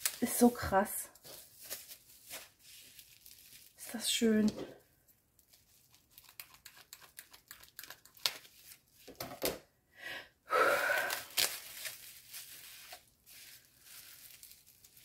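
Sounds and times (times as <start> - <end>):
packaging rustling and crinkling: 0.0 - 4.5, 11.0 - 15.0
packaging tearing: 11.0 - 15.0.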